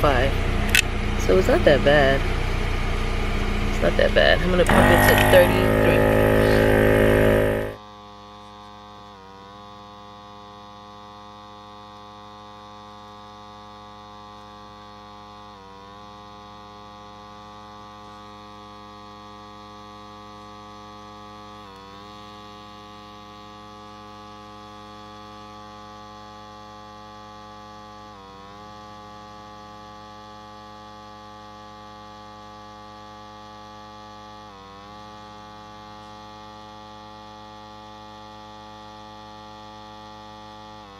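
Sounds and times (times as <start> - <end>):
air compressor buzzing: 4.6 - 7.8
steady multi-tone hum: 4.6 - 7.8.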